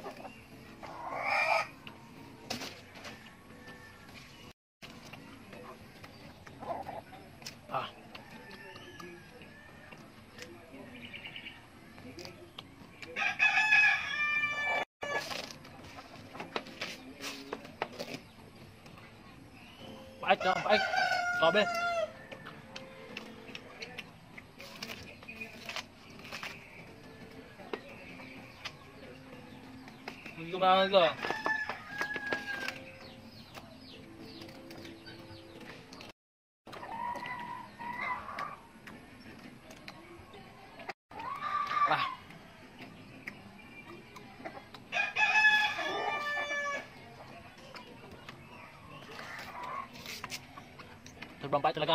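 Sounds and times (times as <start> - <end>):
rooster crowing: 13.2 - 15.2, 20.6 - 22.6, 44.9 - 46.8
biting and chewing crunches: 22.4 - 26.8.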